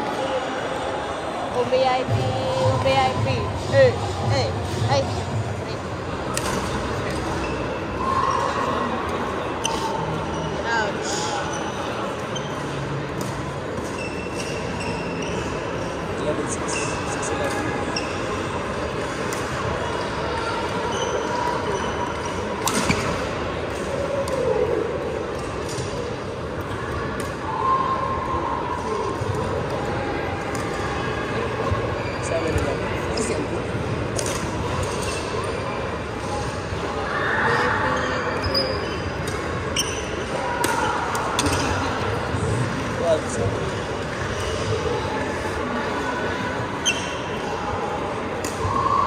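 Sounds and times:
crowd chatter: 0.0 - 49.0
shoe squeaks on wooden floor: 46.8 - 47.3.

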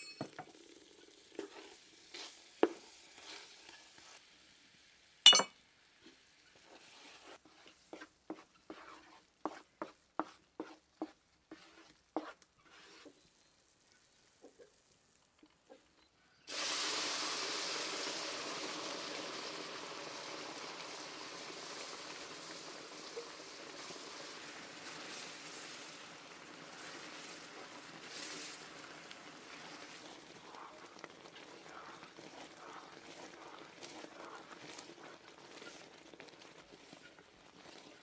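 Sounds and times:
liquid sizzling in hot pan: 0.0 - 15.6, 16.5 - 38.0
wooden spatula scraping metal pan: 6.6 - 13.2, 26.7 - 28.8, 29.4 - 38.0.

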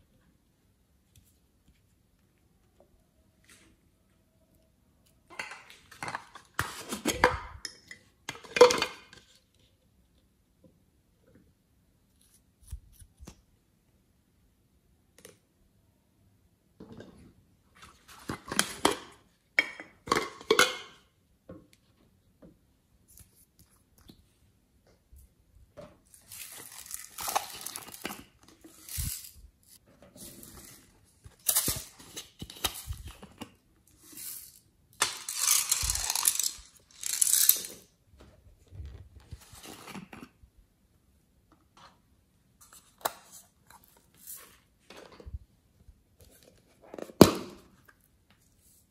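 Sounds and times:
crinkly plastic rustling: 26.1 - 33.4, 35.1 - 37.8.

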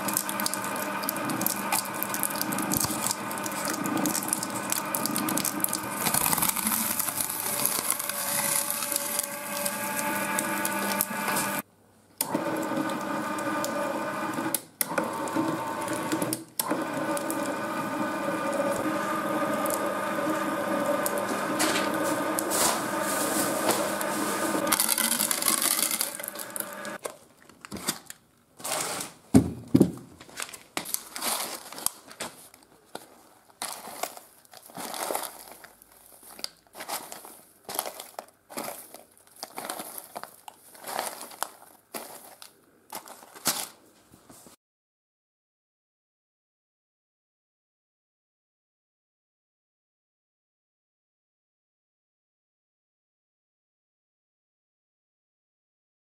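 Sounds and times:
gear motor whine: 0.0 - 11.6, 13.1 - 27.0
loud crinkles: 0.0 - 11.6, 20.8 - 29.2, 30.2 - 44.0
shredder crunching material: 0.0 - 11.6, 12.2 - 29.2, 30.4 - 43.8.

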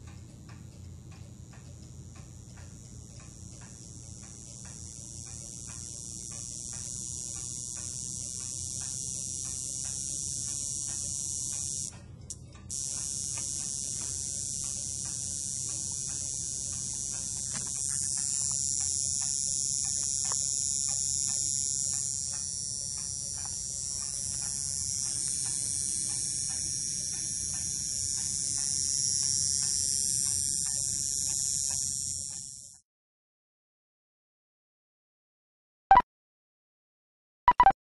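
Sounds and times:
transformer high-pitched whine: 3.3 - 11.9, 12.7 - 32.8.

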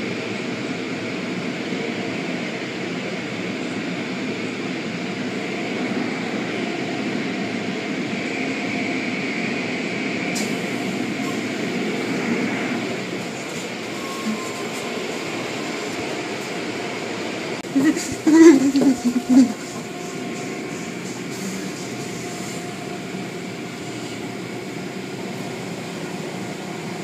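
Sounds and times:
mechanical rumble and hiss: 10.2 - 27.0.

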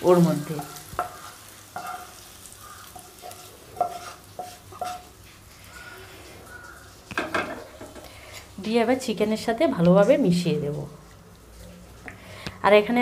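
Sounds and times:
metal spoon tapping and scraping: 0.6 - 2.2, 2.9 - 5.1.

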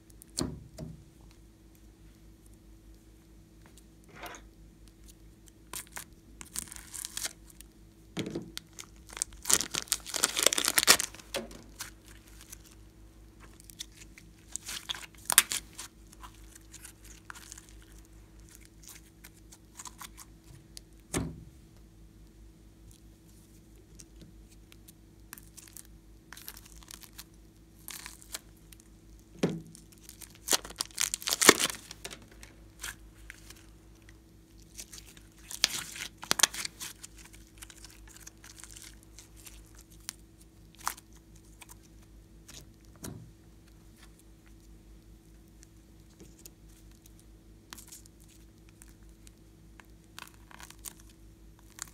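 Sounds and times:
slime crackling and tearing: 5.0 - 7.7, 8.5 - 12.8, 13.4 - 20.9, 23.9 - 43.0, 45.4 - 51.9.

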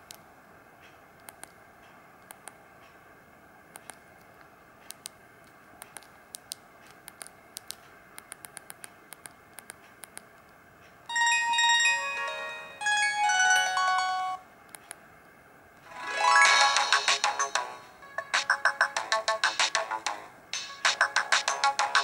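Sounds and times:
electronic ringtone melody: 11.1 - 14.4, 15.9 - 20.1.

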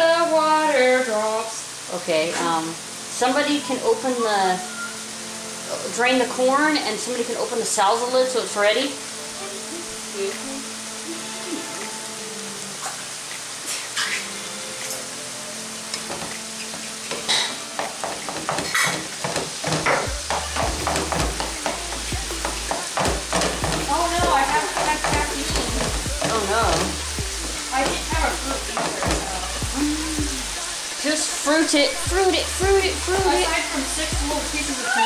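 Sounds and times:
ground beef sizzling in a skillet: 0.0 - 35.0
spoon scraping a pan: 15.8 - 29.3.

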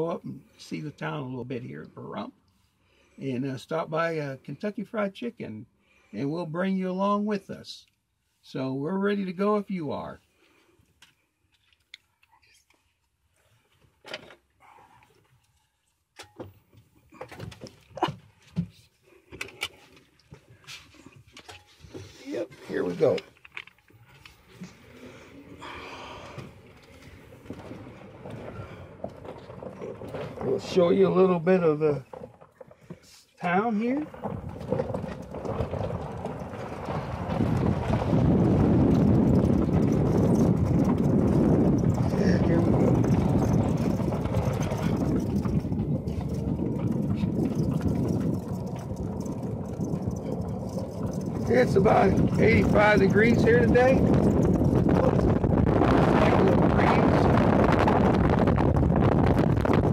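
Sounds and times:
knocks clicks and rustling: 16.1 - 24.8, 26.3 - 33.1, 34.0 - 59.9
golf cart rumble: 22.6 - 59.9.

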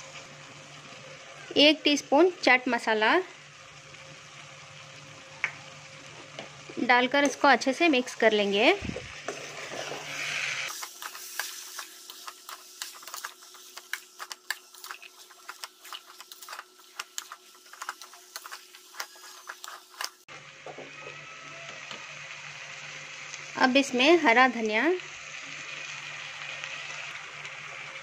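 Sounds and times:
soft sizzle: 0.0 - 28.0
metal spoon scraping steel pan: 9.3 - 20.2.

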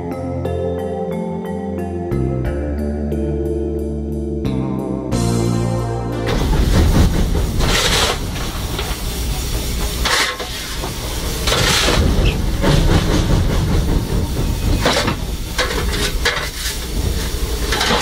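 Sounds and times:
steam locomotive low rumble: 5.1 - 18.0
steam hiss bursts: 6.3 - 18.0.

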